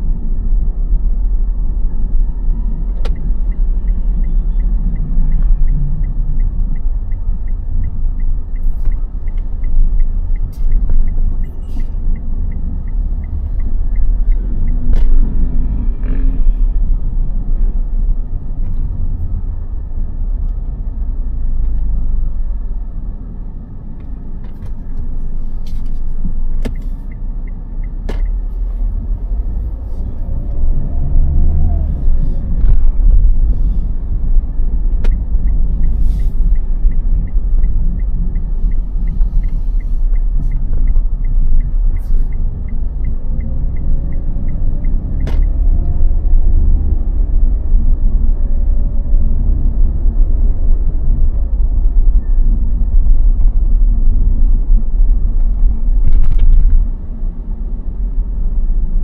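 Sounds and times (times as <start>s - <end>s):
cars passing: 0.0s - 59.0s
heavy low rumble: 28.4s - 59.0s.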